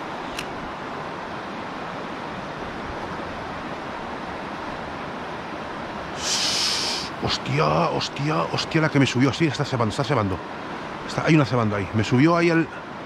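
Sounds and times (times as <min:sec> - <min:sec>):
water running over weir: 0:06.1 - 0:10.4
short loud hiss: 0:06.2 - 0:07.1.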